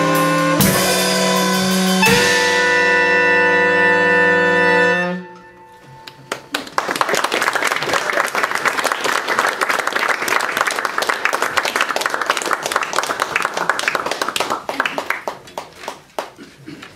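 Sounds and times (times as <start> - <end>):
audience applauding: 6.0 - 16.9.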